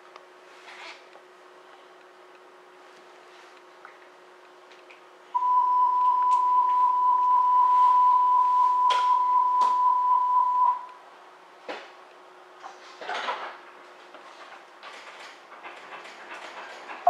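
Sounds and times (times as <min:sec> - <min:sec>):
electronic signal tone: 0:05.4 - 0:10.9.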